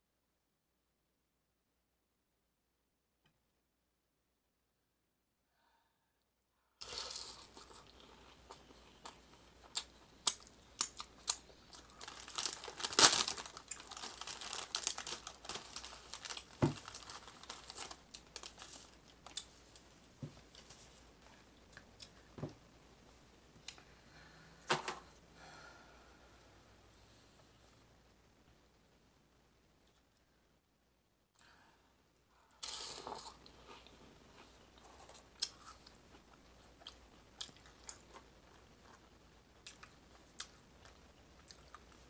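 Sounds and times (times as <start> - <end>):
plastic bag crinkling: 11.3 - 19.4.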